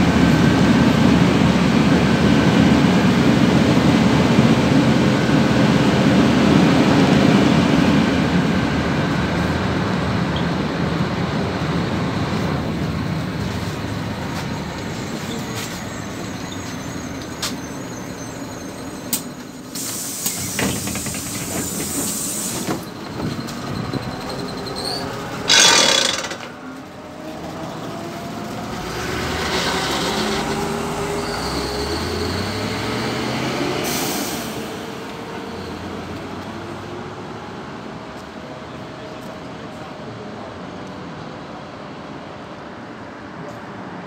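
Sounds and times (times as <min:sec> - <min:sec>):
air brake hiss: 0:19.1 - 0:22.8, 0:33.8 - 0:34.8
bus engine revving: 0:20.1 - 0:35.3.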